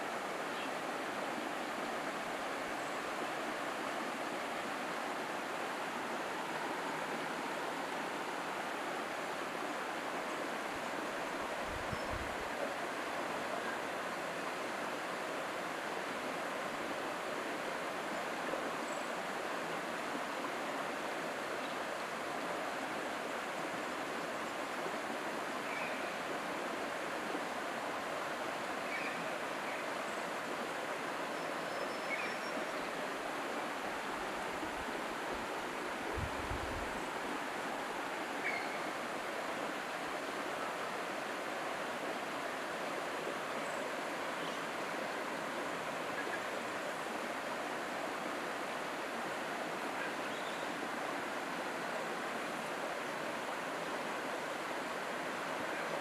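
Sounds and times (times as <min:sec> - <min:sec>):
stream rushing: 0:00.0 - 0:56.0.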